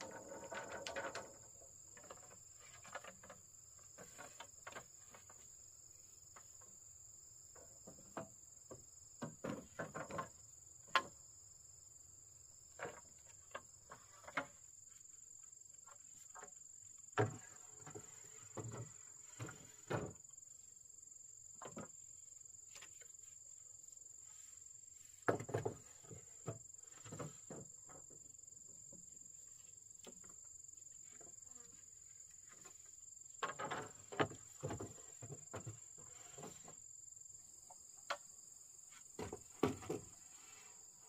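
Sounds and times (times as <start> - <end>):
wooden knocks and clatter: 0.0 - 5.6, 7.5 - 11.2, 12.7 - 14.7, 17.2 - 20.3, 21.6 - 22.0, 25.0 - 31.4, 32.3 - 36.8, 39.1 - 40.2.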